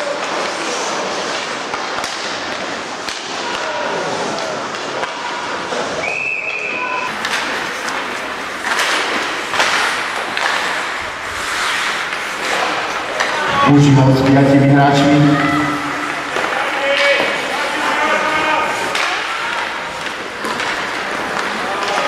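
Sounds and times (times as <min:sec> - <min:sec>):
sticks and puck clacking: 0:00.0 - 0:05.7, 0:07.1 - 0:15.1, 0:15.7 - 0:22.0
skates scraping ice: 0:00.0 - 0:06.0, 0:07.1 - 0:22.0
high whistle: 0:06.0 - 0:07.1
players calling out: 0:13.3 - 0:19.0.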